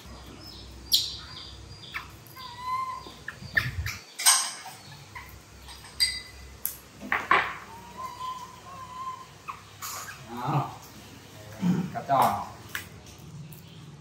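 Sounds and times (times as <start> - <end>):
baby monkey squeaking: 0.9 - 6.3, 7.7 - 10.3.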